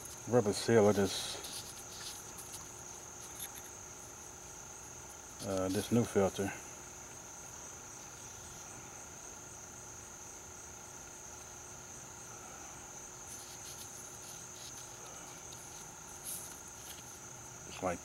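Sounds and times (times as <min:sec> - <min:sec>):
insects trilling: 0:00.0 - 0:18.0
light clicks and rubbing: 0:01.0 - 0:03.8, 0:05.4 - 0:06.0.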